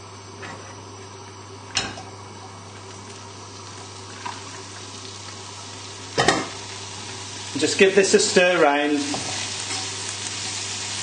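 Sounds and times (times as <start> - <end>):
oil sizzling in frying pan: 2.4 - 11.0.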